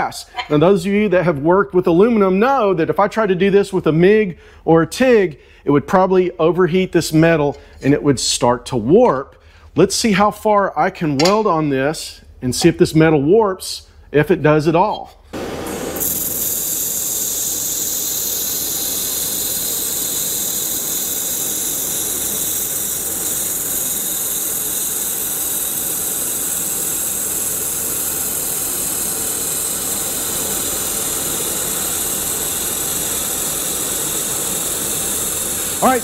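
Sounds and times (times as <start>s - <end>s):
laser welder hissing: 15.4s - 36.0s.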